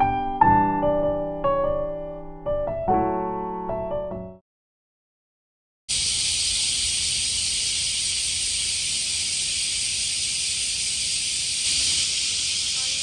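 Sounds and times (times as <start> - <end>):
high-pitched outdoor hiss: 5.9 - 13.0.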